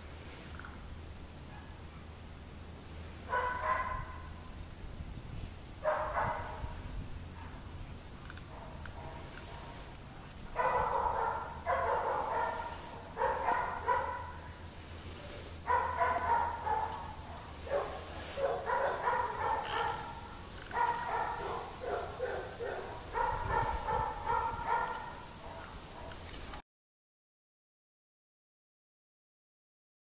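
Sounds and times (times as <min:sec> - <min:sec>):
dog yipping: 0:03.3 - 0:04.3, 0:10.6 - 0:14.6, 0:15.7 - 0:26.1.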